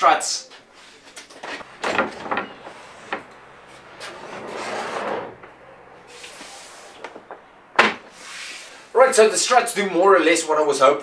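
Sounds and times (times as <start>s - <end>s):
workbench swinging down on gas struts: 1.1s - 8.7s.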